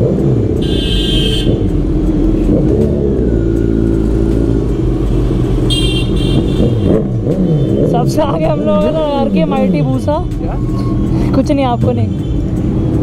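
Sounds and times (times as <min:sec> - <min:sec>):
motorcycle engine in traffic: 0:00.0 - 0:13.0
vehicle horn beeping: 0:00.6 - 0:01.7, 0:05.6 - 0:07.9.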